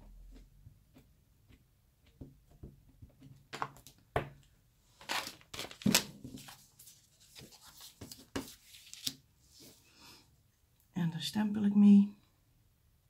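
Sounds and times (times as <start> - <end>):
plastic sheet crinkling: 5.0 - 9.2.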